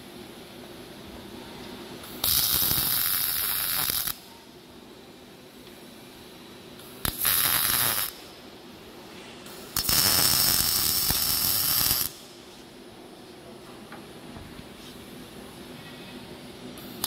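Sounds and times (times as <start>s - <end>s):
welding arc hissing: 2.0s - 4.2s, 6.8s - 8.4s, 9.5s - 12.6s, 16.8s - 17.0s.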